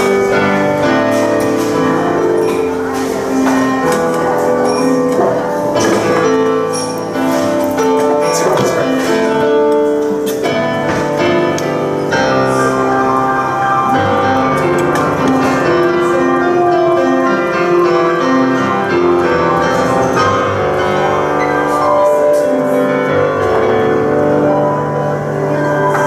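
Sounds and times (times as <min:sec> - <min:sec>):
solo piano improvisation: 0:00.0 - 0:26.0.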